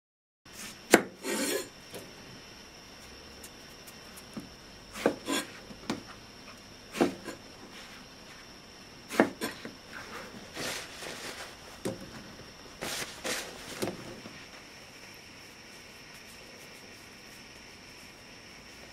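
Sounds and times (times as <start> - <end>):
paper towel rubbing swish: 12.8 - 13.8.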